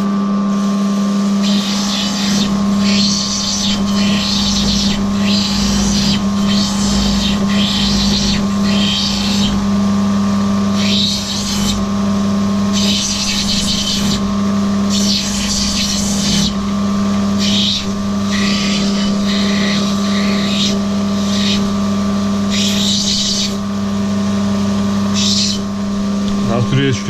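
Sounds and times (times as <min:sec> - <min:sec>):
grinding machine motor hum: 0:00.0 - 0:27.0
stone hissing on wet grinding wheel: 0:01.3 - 0:09.7, 0:10.7 - 0:11.9, 0:12.7 - 0:21.8, 0:22.4 - 0:23.6, 0:25.1 - 0:25.7.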